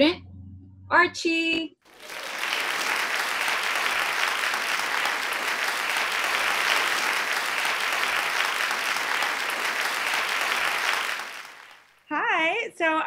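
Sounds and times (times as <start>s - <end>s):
crowd applauding: 1.9s - 12.0s.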